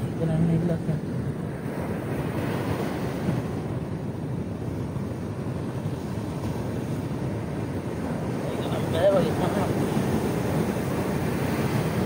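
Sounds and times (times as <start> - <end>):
surf: 0.0 - 12.0
wind buffeting microphone: 0.0 - 12.0.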